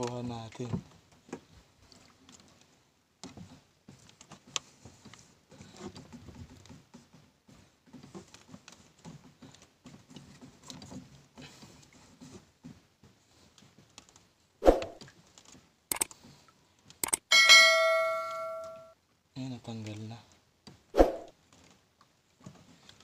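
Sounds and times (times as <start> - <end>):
light clicks and taps: 0.0 - 7.3, 12.6 - 14.3.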